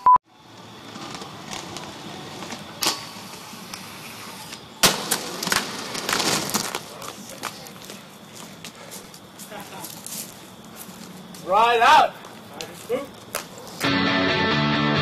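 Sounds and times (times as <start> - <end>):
inline skate wheels rolling: 0.4 - 11.1
skates scraping in grinds: 0.7 - 9.2.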